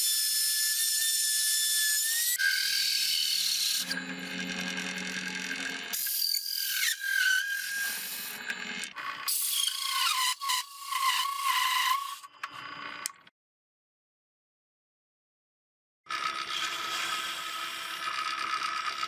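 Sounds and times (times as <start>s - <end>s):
hole saw grinding wood: 1.6s - 12.3s
drill press motor whine: 2.5s - 9.3s, 11.8s - 13.3s.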